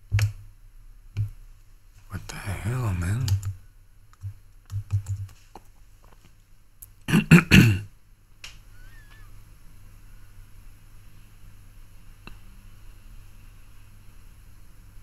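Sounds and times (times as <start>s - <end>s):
man clearing throat: 7.1s - 7.9s.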